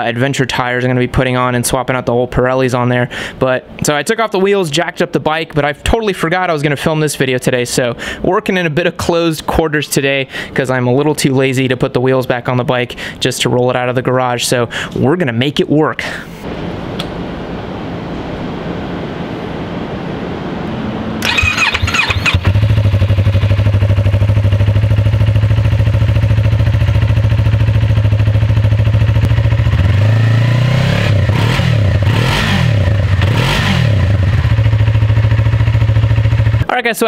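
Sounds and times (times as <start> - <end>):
starter cranking: 21.2 - 24.0
motorcycle engine idling and revving: 21.2 - 36.7.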